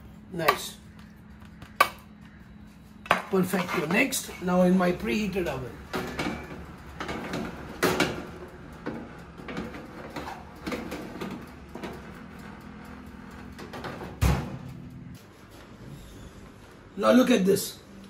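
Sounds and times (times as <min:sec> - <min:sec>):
metal tray clanking and scraping: 0:03.1 - 0:04.3, 0:05.9 - 0:12.6
oven door shutting: 0:13.5 - 0:14.8.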